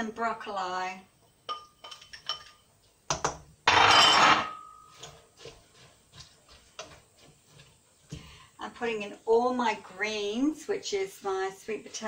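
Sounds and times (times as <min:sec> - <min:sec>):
wooden spoon knocking while stirring: 0:04.9 - 0:08.3.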